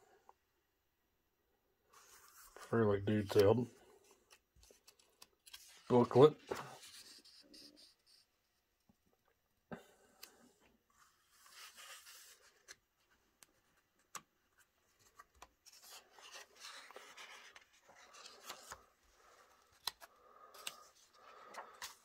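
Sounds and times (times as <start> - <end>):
paper pages rustling: 4.3 - 8.2, 11.0 - 22.0.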